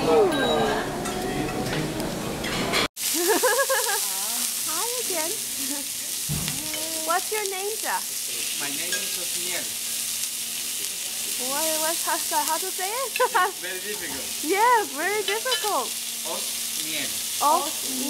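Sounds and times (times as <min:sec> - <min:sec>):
meat sizzling on a grill: 0:03.0 - 0:18.0.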